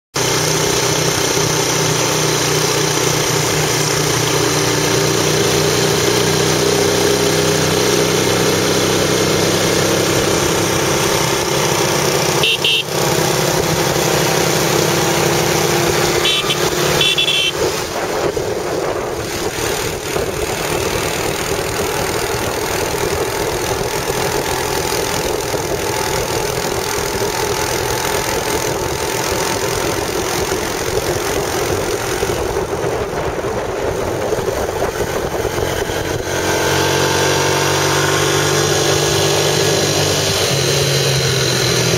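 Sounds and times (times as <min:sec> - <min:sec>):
road noise: 0:00.1 - 0:41.9
motorbike engines running: 0:00.2 - 0:41.9
wind rushing on microphone: 0:17.5 - 0:27.3, 0:28.3 - 0:36.8.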